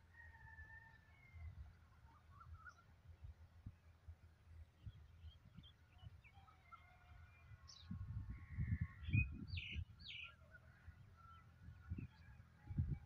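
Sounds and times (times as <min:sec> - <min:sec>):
wind gusting on microphone: 0:07.6 - 0:10.1, 0:11.6 - 0:13.0.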